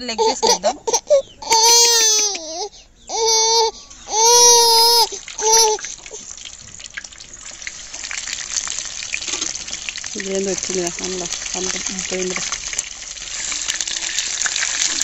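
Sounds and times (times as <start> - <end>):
child wailing: 1.4 - 5.8
hot oil sizzling: 3.5 - 15.0.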